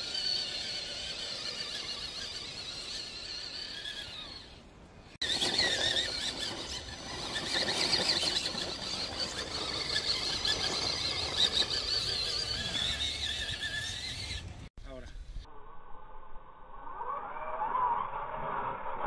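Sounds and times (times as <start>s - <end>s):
electric motor whine: 0.0s - 14.7s.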